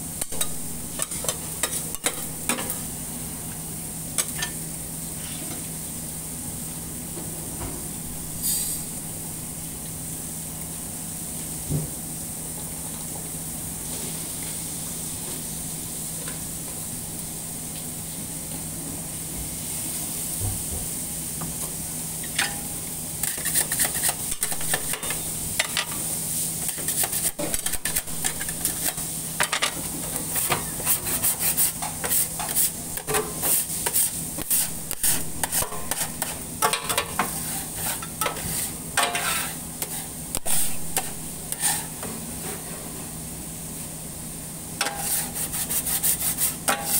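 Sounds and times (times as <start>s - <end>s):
steady hiss and hum: 0.0s - 46.9s
metal scraper scraping a griddle: 23.2s - 25.2s, 26.7s - 29.0s, 30.3s - 32.8s, 33.4s - 41.9s, 44.8s - 46.9s.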